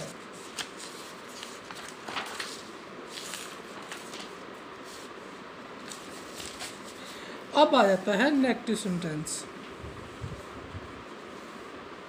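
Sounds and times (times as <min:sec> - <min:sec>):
paper sheet rustling: 0:00.0 - 0:07.2
steady background hiss: 0:00.0 - 0:12.0.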